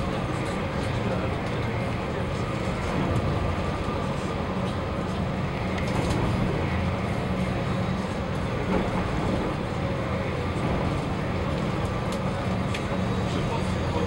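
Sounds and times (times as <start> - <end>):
ferry engines droning: 0.0 - 14.0.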